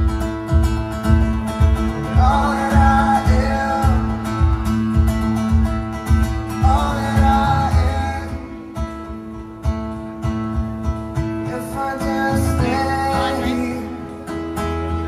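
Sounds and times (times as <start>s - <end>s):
steady low beat: 0.0s - 8.1s
guitar: 0.0s - 15.0s
person singing: 1.9s - 4.6s, 6.5s - 8.8s, 11.4s - 14.3s.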